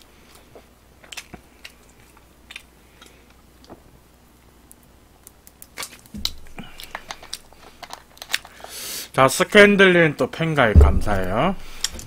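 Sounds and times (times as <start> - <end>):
soft chewing: 0.0 - 3.9
soft thump: 10.8 - 11.2.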